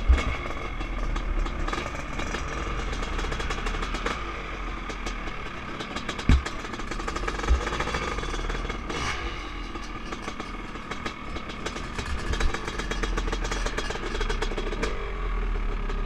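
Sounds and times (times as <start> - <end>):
motorcycle engine at low revs: 0.0 - 16.0
dull low thumps: 6.3 - 6.6.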